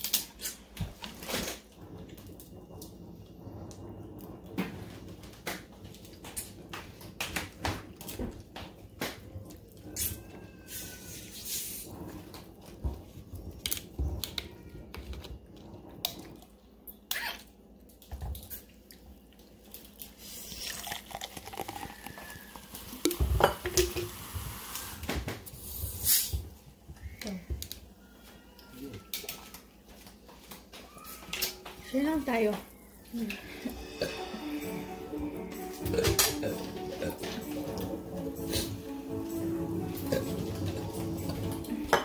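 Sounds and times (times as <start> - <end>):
soda pouring and fizzing: 18.3 - 26.5.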